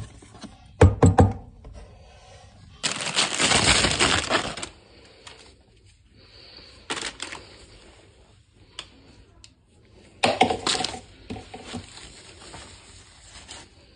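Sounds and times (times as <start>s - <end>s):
packaging rustling: 2.8s - 5.5s, 6.9s - 7.8s.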